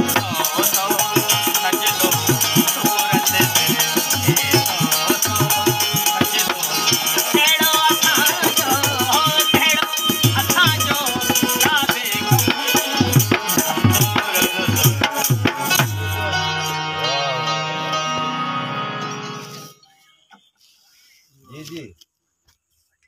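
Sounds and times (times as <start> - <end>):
fast hand drum beat: 0.0 - 16.0
harmonium melody: 0.0 - 20.6.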